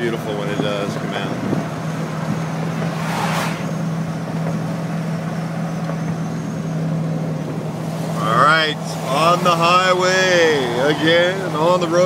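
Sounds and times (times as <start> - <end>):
road noise: 0.0 - 12.0
truck engine drone: 0.0 - 12.0
brief rushing noise: 2.8 - 3.8.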